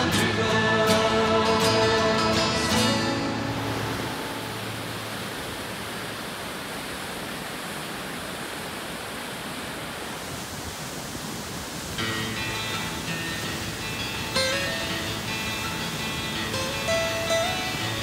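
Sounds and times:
acoustic guitar music: 0:00.0 - 0:05.8, 0:12.0 - 0:18.0
waterfall rushing: 0:00.0 - 0:18.0.

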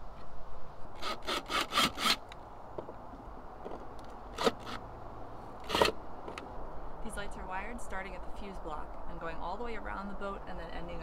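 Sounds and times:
cordless drill rasping: 0:01.0 - 0:02.3.

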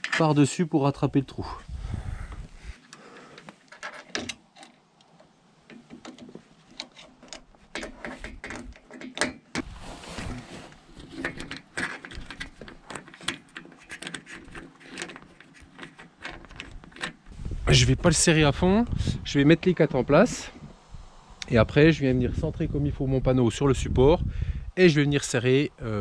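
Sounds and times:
metallic clicks of screw and nut: 0:03.4 - 0:09.6, 0:11.2 - 0:17.3.

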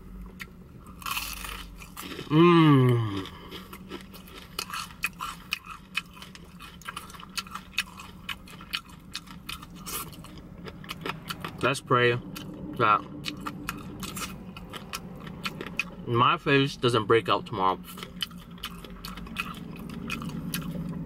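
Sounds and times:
chewing crispy fried chicken: 0:00.2 - 0:21.0
hummed mmm: 0:02.2 - 0:03.5.

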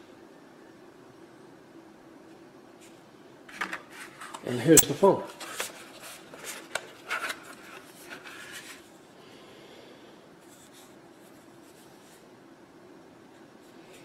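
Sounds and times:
plastic scraping and rustling: 0:05.3 - 0:08.9.

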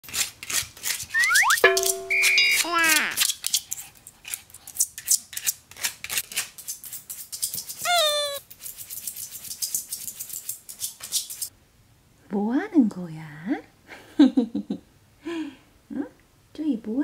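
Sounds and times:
dog whining: 0:01.2 - 0:01.6, 0:07.8 - 0:08.4
dog claws scratching a wall: 0:03.2 - 0:07.9.

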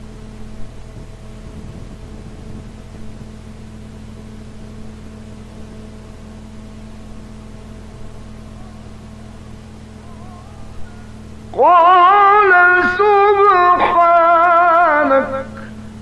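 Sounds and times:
recording hum and hiss: 0:00.0 - 0:16.0
faint wavering voice: 0:07.6 - 0:15.8.

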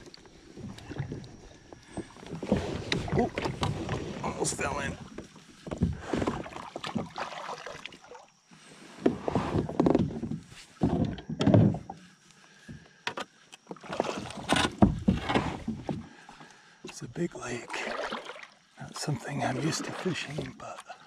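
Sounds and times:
paddle splashes in water: 0:00.0 - 0:05.2, 0:05.8 - 0:08.3, 0:13.7 - 0:16.0, 0:17.6 - 0:21.0.

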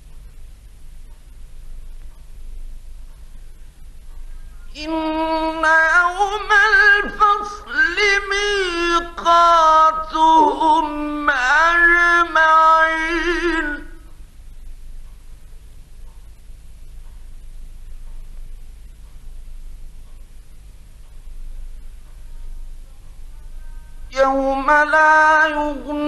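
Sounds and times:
low recording hum: 0:00.0 - 0:26.0
man chanting recitation: 0:04.7 - 0:14.0, 0:23.5 - 0:26.0.

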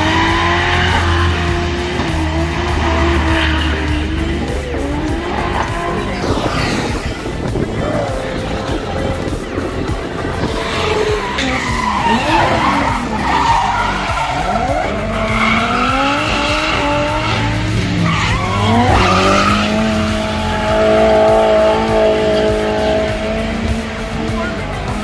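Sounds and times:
car engines revving: 0:00.0 - 0:25.0
tyres screeching: 0:00.0 - 0:25.0.

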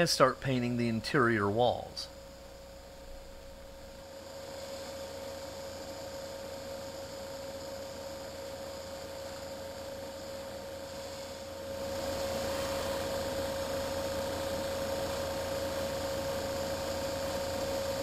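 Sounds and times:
exhaust fan humming: 0:00.0 - 0:04.2.

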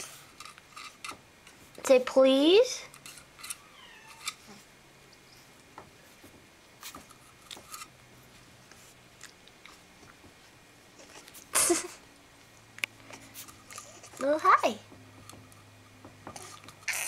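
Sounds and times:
soft clicks and scrapes: 0:12.8 - 0:14.4.

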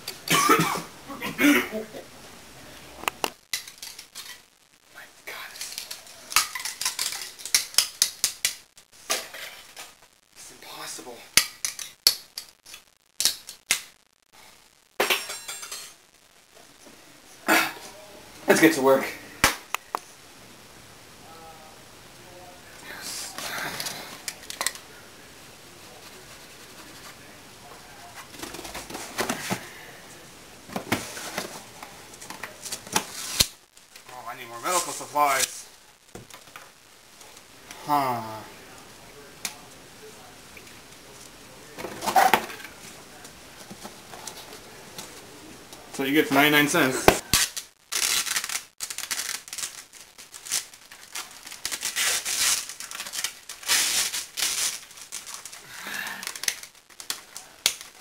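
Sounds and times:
cardboard tubes rustling: 0:05.3 - 0:10.0, 0:30.6 - 0:35.6, 0:46.8 - 0:58.0
duct tape pulled off roll: 0:32.9 - 0:33.6, 0:47.3 - 0:55.6.

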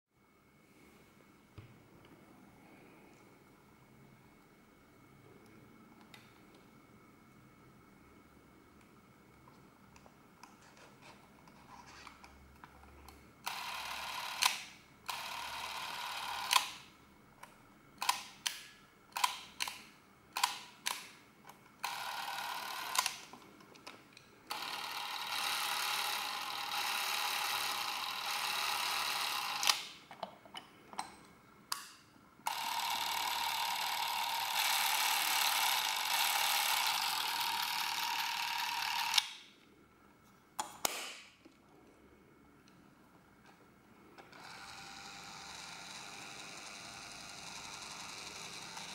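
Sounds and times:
camera motor whirring: 0:13.4 - 0:16.9, 0:21.8 - 0:23.3, 0:24.5 - 0:30.0, 0:32.5 - 0:39.4, 0:44.3 - 0:48.9.

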